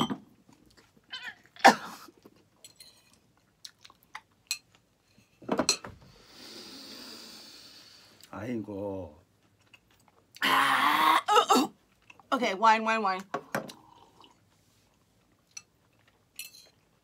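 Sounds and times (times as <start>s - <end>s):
mouth and chewing sounds: 2.2s - 4.9s, 9.2s - 10.4s, 11.8s - 12.3s, 13.7s - 17.0s.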